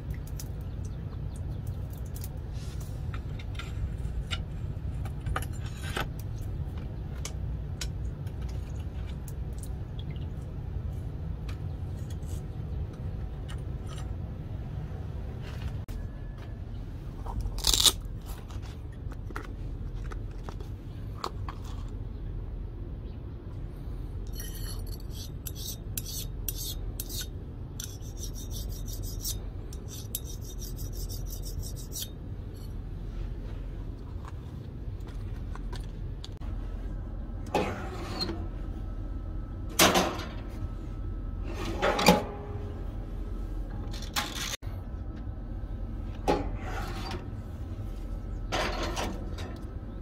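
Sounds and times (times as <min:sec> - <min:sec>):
file scraping steel blade: 0:24.3 - 0:32.7.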